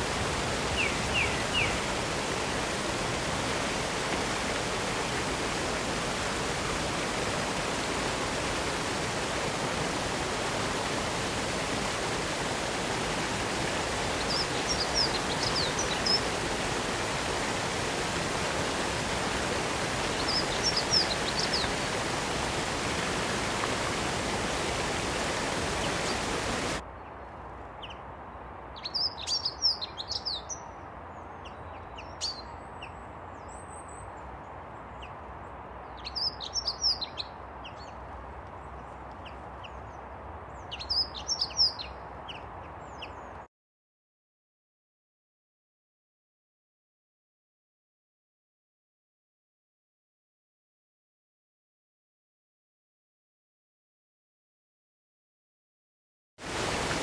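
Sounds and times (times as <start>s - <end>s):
waterfall rushing: 0.0s - 26.8s, 56.4s - 57.0s.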